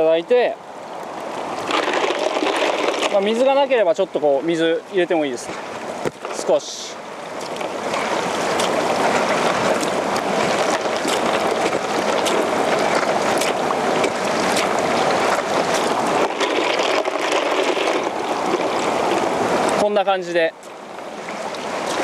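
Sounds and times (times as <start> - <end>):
water splashing onto ice: 7.4 - 19.8.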